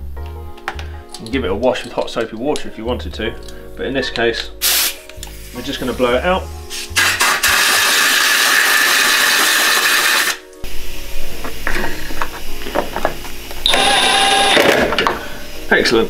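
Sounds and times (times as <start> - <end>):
compressed air hissing: 4.6 - 15.9
cordless drill whirring: 13.6 - 14.8.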